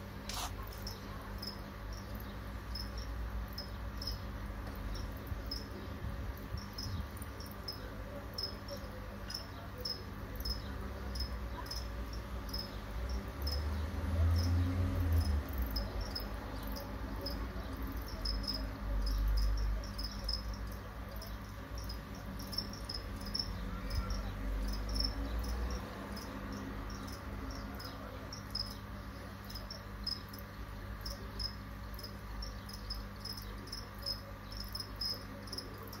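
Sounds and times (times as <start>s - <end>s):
crickets chirping: 0.3s - 36.0s.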